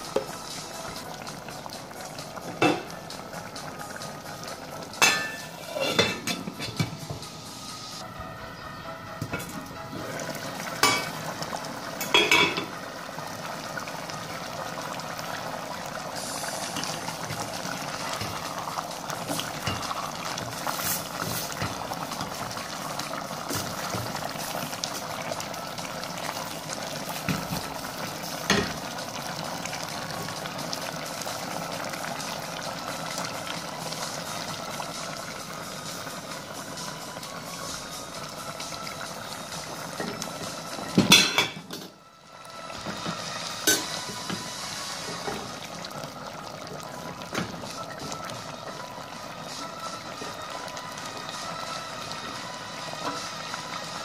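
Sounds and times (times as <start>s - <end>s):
stew simmering and bubbling in a pot: 0.0s - 54.0s
glass pot lid clanking: 2.6s - 2.9s, 5.0s - 7.2s, 10.8s - 11.2s, 12.0s - 12.7s, 41.0s - 41.9s, 43.6s - 43.9s.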